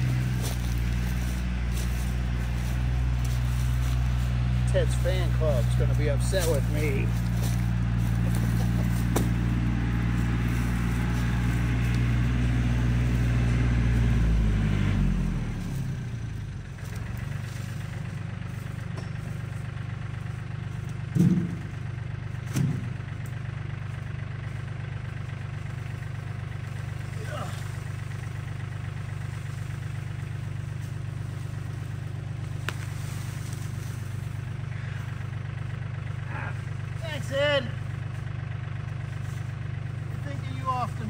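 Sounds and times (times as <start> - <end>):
engine revving blips: 0.0 - 17.2
farm machine engine running: 0.0 - 41.0.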